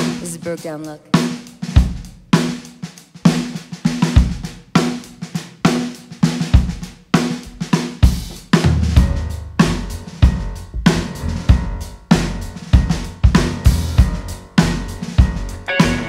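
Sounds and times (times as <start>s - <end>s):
rock drum beat: 0.0s - 16.0s
band instruments sustained notes: 15.4s - 16.0s.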